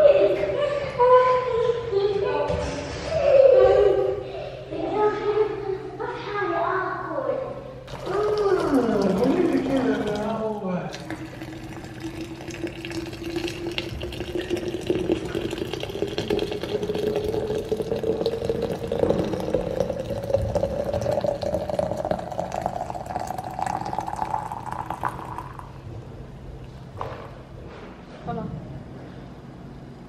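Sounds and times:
coffee pouring into flask: 7.9s - 25.8s.

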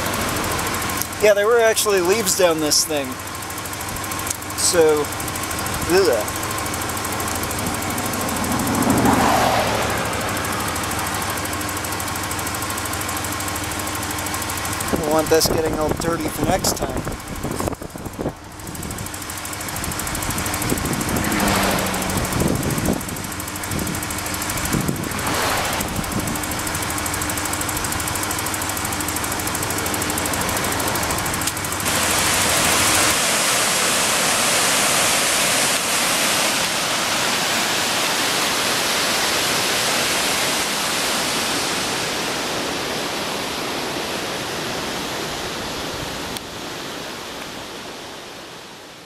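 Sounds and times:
car engine idling: 0.0s - 49.0s
rushing mountain river: 29.3s - 49.0s.

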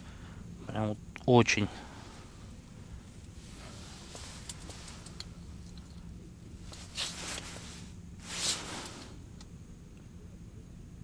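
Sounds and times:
low steady hum: 0.0s - 11.0s
short hissing rustles: 1.7s - 9.4s.

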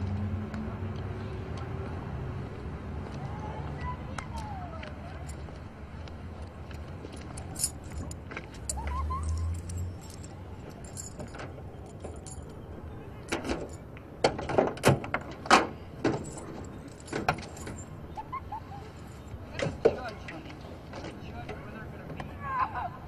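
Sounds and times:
car keys jangling: 7.1s - 12.6s, 16.1s - 18.0s.

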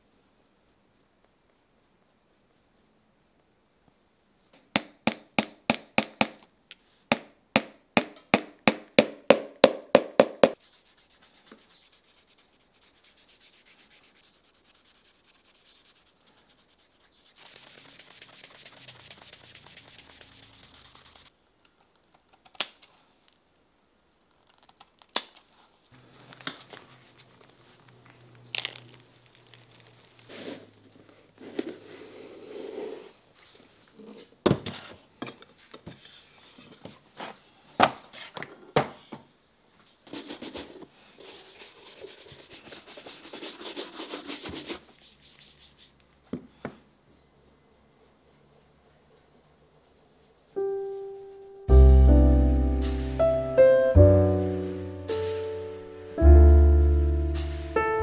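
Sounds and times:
hammer tapping nail: 4.7s - 6.4s, 7.1s - 10.6s
cloth rubbing polish on leather: 10.5s - 21.3s, 40.1s - 46.1s, 47.5s - 50.6s.

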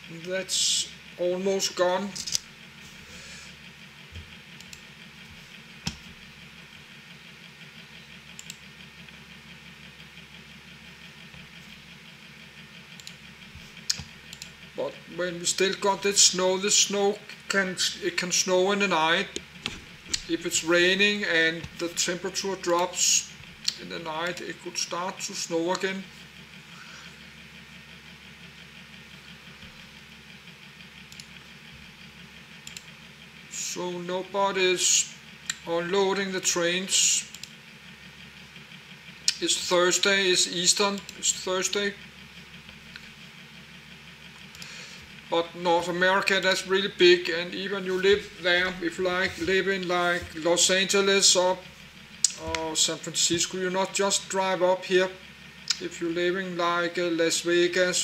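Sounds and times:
low mechanical hum: 0.0s - 58.0s
computer mouse clicks: 4.2s - 4.9s, 8.3s - 8.6s, 13.0s - 13.2s, 13.8s - 14.6s, 31.1s - 31.4s, 32.6s - 32.9s.

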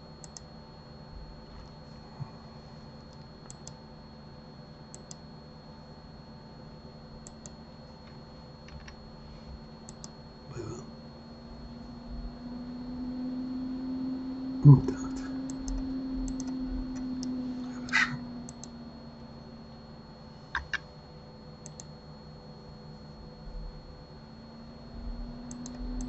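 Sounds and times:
faint steady hum: 0.0s - 26.0s
computer mouse clicks: 0.2s - 0.5s, 3.1s - 3.8s, 4.9s - 5.2s, 7.2s - 9.0s, 9.8s - 10.2s, 15.5s - 16.6s, 17.2s - 18.7s, 20.5s - 20.9s, 21.6s - 21.9s, 25.5s - 26.0s
keyboard clicks: 3.1s - 3.8s, 9.9s - 10.2s, 20.5s - 20.9s.

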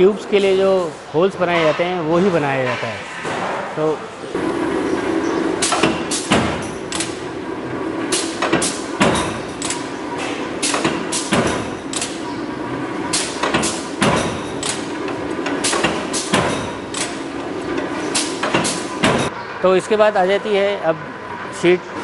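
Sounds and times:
machine hum: 3.2s - 22.0s
punch press stamping metal: 5.6s - 7.2s, 8.1s - 12.3s, 13.1s - 17.3s, 18.0s - 19.3s.

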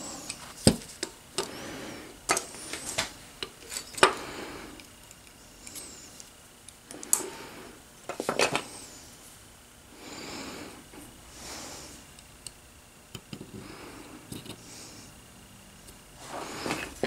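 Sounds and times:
soft rubbing sounds: 16.2s - 17.0s.

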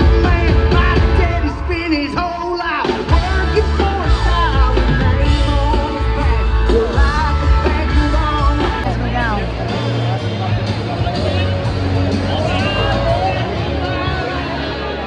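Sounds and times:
man singing: 0.0s - 9.7s
live country-rock band: 0.0s - 15.0s.

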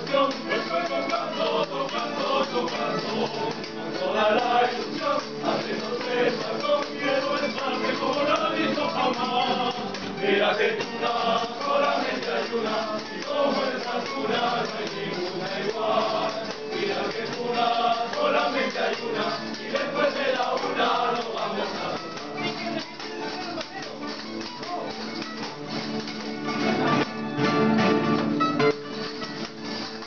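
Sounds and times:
male voices singing together: 0.0s - 25.5s
strummed guitars: 0.0s - 30.0s.

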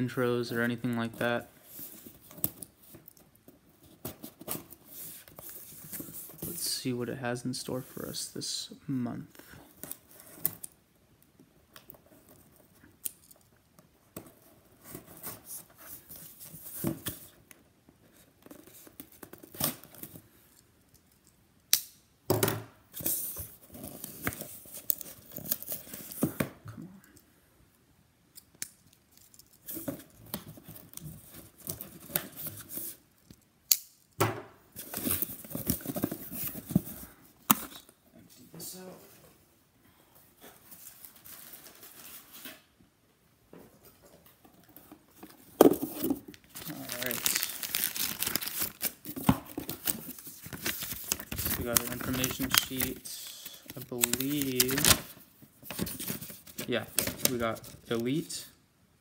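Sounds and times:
cardboard rustling: 34.8s - 37.8s, 43.8s - 58.1s
cardboard box tape tearing: 46.6s - 52.9s.

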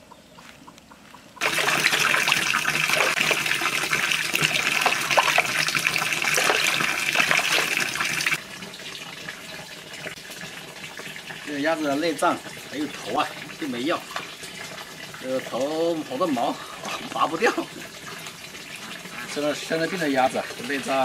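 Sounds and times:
water sloshing in plastic bucket: 1.4s - 8.4s.

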